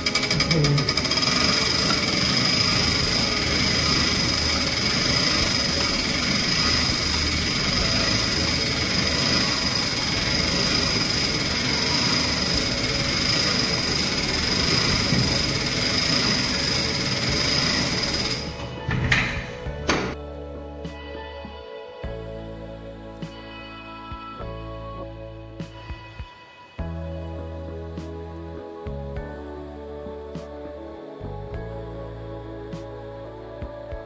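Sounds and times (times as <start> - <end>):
clock winding mechanism whirring: 0.0 - 20.2.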